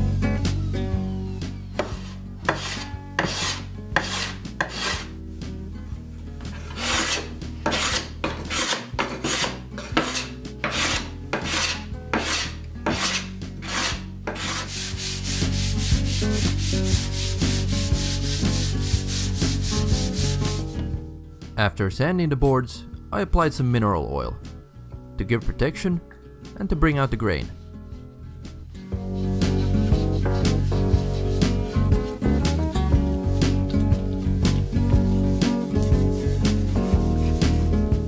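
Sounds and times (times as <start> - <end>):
sandpaper rubbing on wood: 1.8 - 5.1, 6.5 - 20.7, 29.1 - 33.6, 34.5 - 38.0.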